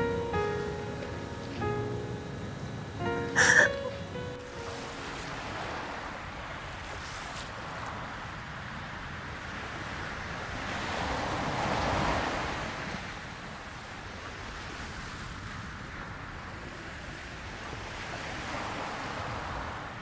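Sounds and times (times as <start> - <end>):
wave breaking: 0.0 - 8.0
sea surf on sandy beach: 0.0 - 20.0.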